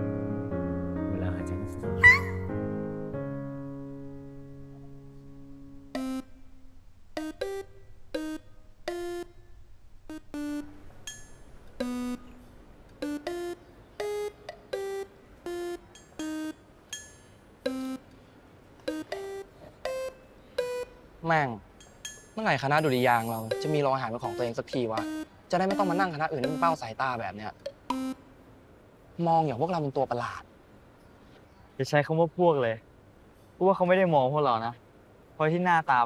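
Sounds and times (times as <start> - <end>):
light melody of short notes: 4.8 - 6.6, 7.2 - 18.1, 18.8 - 21.0, 21.8 - 26.9
held chord: 10.1 - 18.1, 18.9 - 20.9, 22.7 - 26.9.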